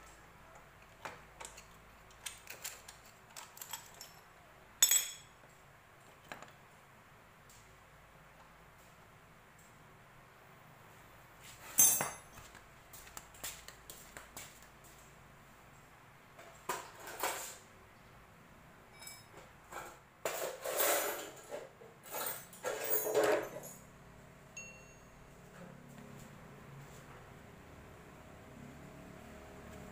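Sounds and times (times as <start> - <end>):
metal tools clinking: 1.4 - 5.4, 11.6 - 12.5, 18.9 - 19.4, 20.3 - 23.9.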